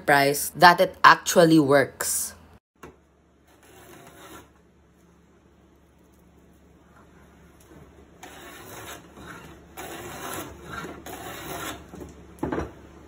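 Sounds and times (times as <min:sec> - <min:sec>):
wooden plane shaving board edge: 0:03.6 - 0:04.5, 0:08.2 - 0:11.9.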